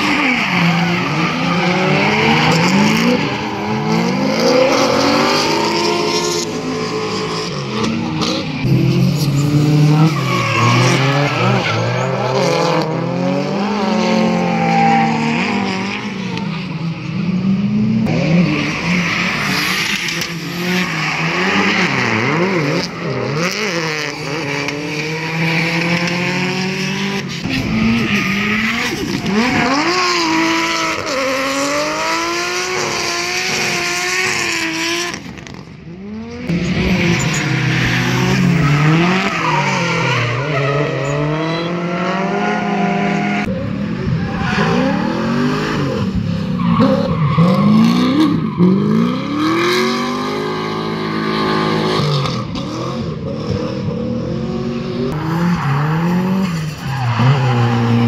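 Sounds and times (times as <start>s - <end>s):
car engines revving: 0.0s - 58.0s
tyre squeal: 8.7s - 12.8s, 36.9s - 43.2s.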